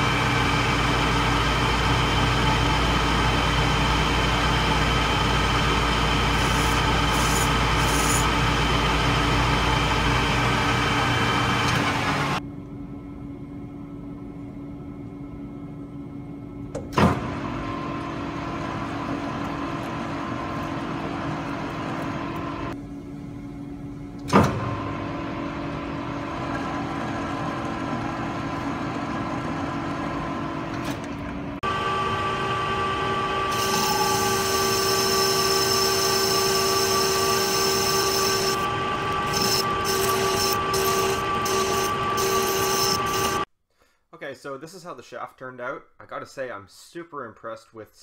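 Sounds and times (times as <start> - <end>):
metal lathe whining: 0.0 - 12.4, 31.7 - 43.5.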